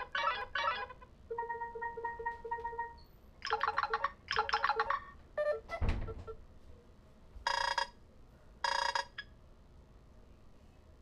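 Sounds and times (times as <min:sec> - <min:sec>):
melody of electronic beeps: 0:00.0 - 0:06.4.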